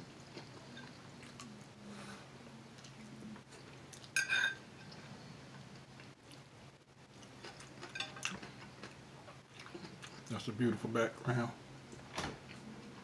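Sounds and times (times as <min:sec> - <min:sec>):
metal fork clinking on plate: 0:04.2 - 0:04.6, 0:07.8 - 0:08.3.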